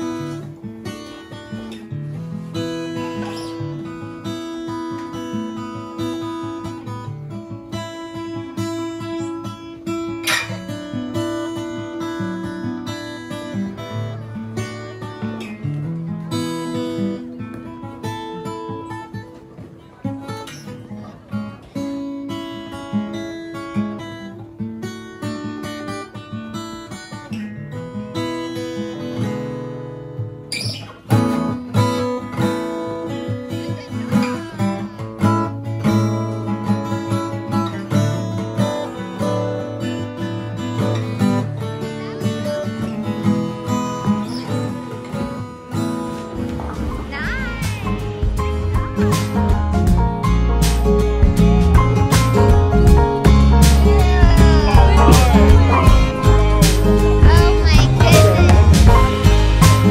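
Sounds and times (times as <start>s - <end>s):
acoustic guitar music: 0.0s - 59.9s.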